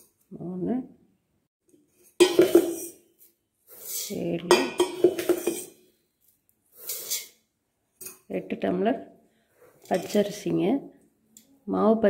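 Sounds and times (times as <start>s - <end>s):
pot ringing: 2.2s - 2.9s
steel tumbler clinking on pot: 2.2s - 3.0s, 4.5s - 5.8s.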